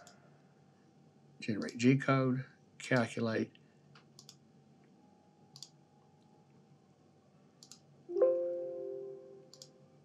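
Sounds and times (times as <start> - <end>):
computer mouse clicks: 4.0 - 4.4, 5.5 - 5.8, 7.6 - 7.9, 9.5 - 9.8.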